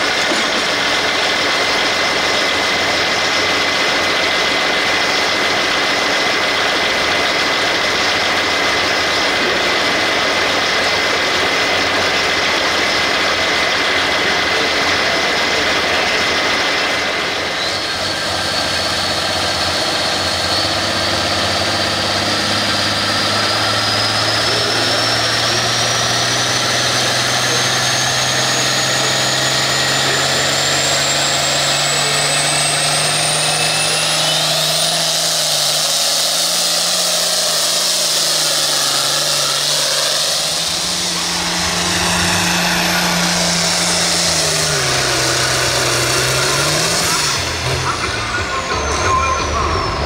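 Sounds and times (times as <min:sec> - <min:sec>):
diesel tractor engine revving: 0:00.0 - 0:50.0
turbo whistle: 0:32.0 - 0:50.0.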